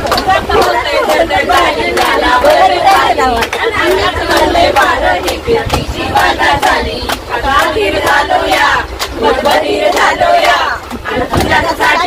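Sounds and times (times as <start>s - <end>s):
hand claps: 0.0s - 11.9s
women singing and shouting: 0.0s - 12.0s.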